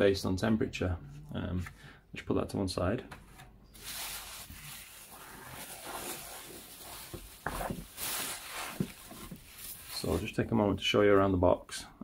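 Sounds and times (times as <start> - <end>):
bubble wrap crackles: 3.8 - 10.4
bubble wrap rustling and crinkling: 3.8 - 10.5.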